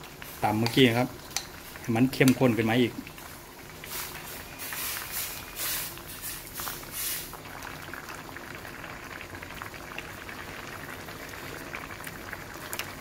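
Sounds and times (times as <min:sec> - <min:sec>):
ladle stirring and splashing: 0:00.0 - 0:07.6
thick curry bubbling: 0:00.0 - 0:13.0.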